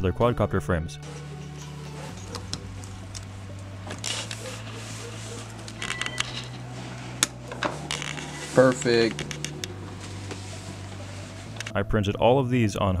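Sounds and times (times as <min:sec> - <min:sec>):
plastic parts rustling and scraping: 0:01.0 - 0:11.8.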